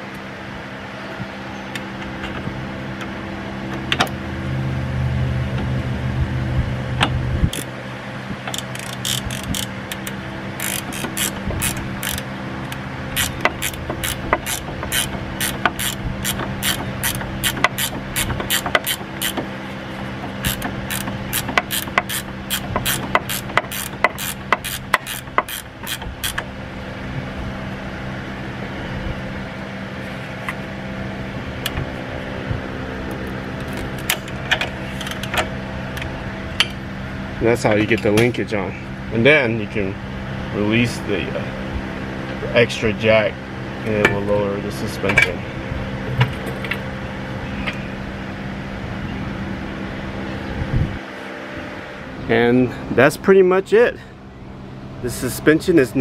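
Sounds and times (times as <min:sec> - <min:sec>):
ratcheting wrench clicking: 0:08.5 - 0:19.4, 0:20.4 - 0:26.4.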